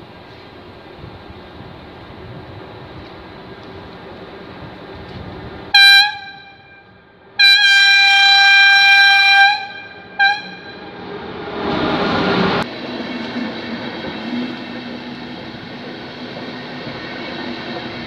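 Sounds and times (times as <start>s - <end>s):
train rumbling past: 0.0s - 18.0s
electric locomotive horn blasts: 5.7s - 11.2s.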